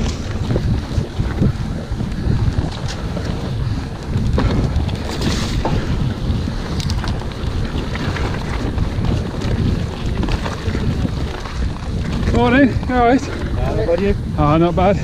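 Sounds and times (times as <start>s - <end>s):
stones and bike rattling: 0.0s - 15.0s
wind buffeting microphone: 0.0s - 15.0s
tyre rumble on gravel: 2.6s - 13.8s.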